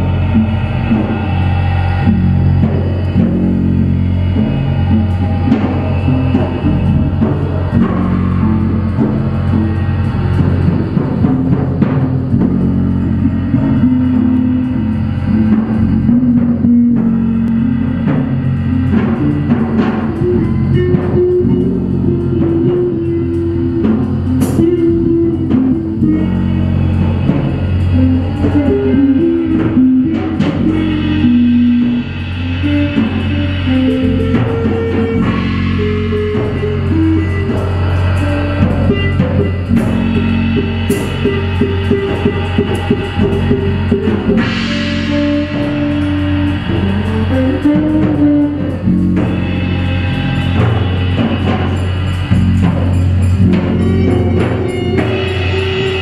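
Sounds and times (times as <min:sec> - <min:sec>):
busy drumming: 0:00.0 - 0:56.0
electric bass and guitar notes: 0:00.0 - 0:56.0.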